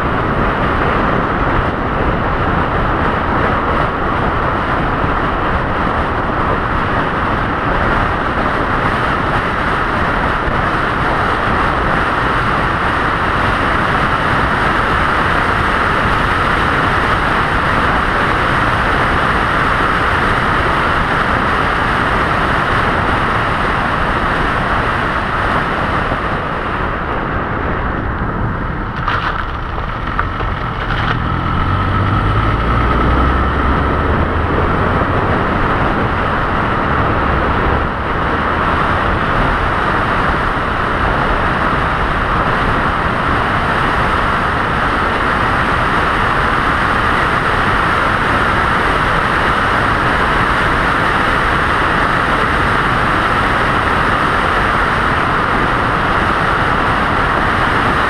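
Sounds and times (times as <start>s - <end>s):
road and wind noise: 0.0s - 58.0s
deep rumble: 22.8s - 47.0s.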